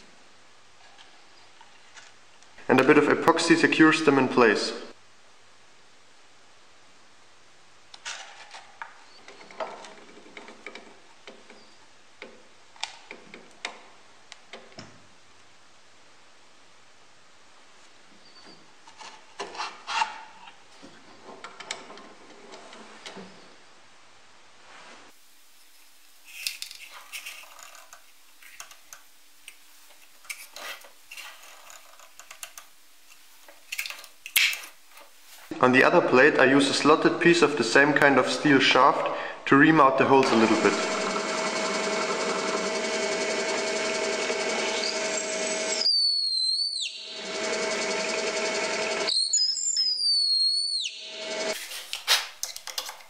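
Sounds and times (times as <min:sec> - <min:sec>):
short scrapes: 0:51.5 - 0:52.4.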